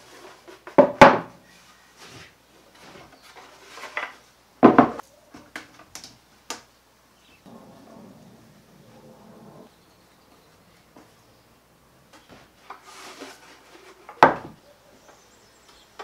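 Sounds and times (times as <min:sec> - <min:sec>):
wooden bins knocking on workbench: 0:00.8 - 0:01.3, 0:04.6 - 0:05.0.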